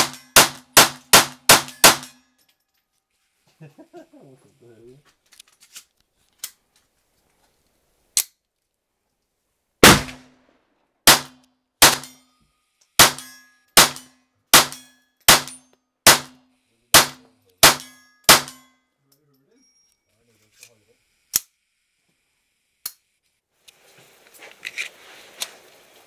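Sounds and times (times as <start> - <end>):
pistol shots: 0.0 - 2.2, 9.8 - 10.4, 11.0 - 12.2, 13.0 - 18.7.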